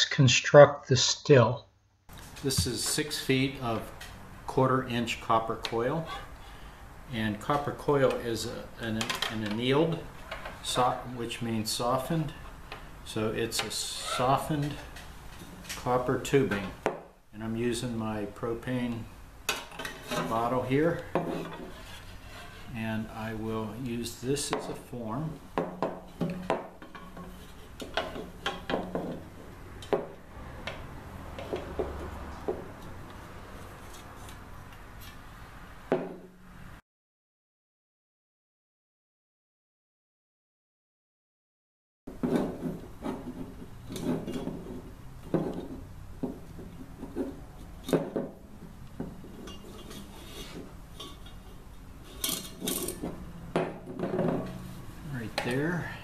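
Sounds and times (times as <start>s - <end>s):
copper tubing scraping on metal: 21.2s - 22.8s, 49.5s - 51.4s
knocks on wooden tabletop: 35.9s - 36.2s
copper tubing clinking and scraping: 49.3s - 53.2s.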